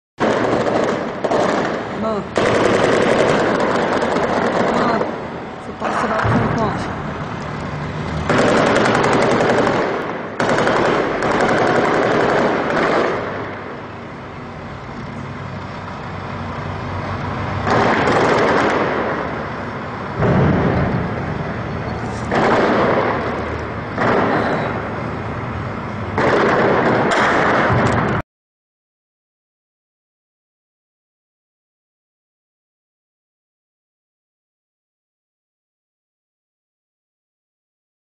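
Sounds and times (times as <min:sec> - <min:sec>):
heavy automatic gunfire: 0:00.2 - 0:07.0, 0:08.2 - 0:13.9, 0:17.6 - 0:25.0, 0:26.1 - 0:28.2
low rumble: 0:01.1 - 0:28.2.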